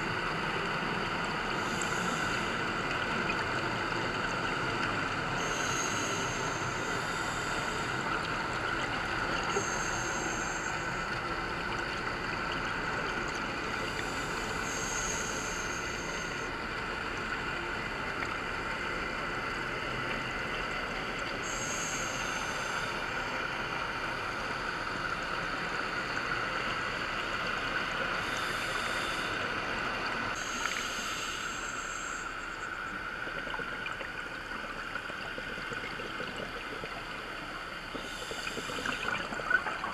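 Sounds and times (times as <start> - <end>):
steady watery hiss: 0.0 - 39.9.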